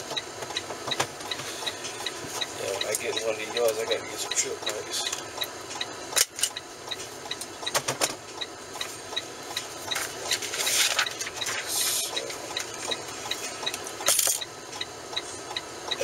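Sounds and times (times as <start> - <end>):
soft ticking: 0.0 - 7.7, 14.4 - 16.0
rustling and handling noise: 9.6 - 14.4.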